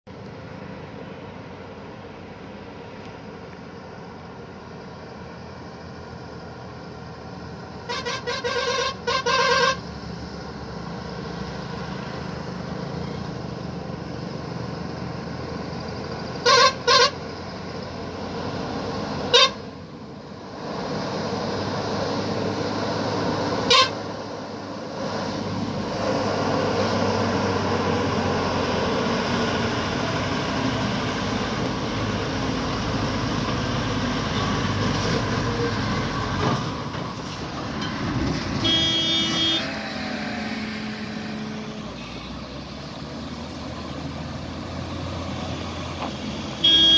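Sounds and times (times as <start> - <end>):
truck engines passing: 0.1 - 46.9
horn toots: 7.9 - 9.8, 16.4 - 17.2, 19.3 - 19.6, 23.7 - 24.0, 38.6 - 39.8, 46.6 - 46.9.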